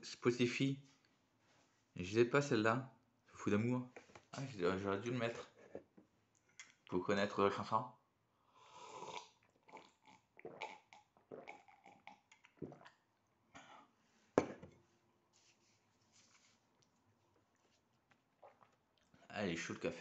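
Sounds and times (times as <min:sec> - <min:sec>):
man sipping coffee: 0:08.5 - 0:13.0, 0:16.1 - 0:19.3
mug knocking on table: 0:14.4 - 0:14.7.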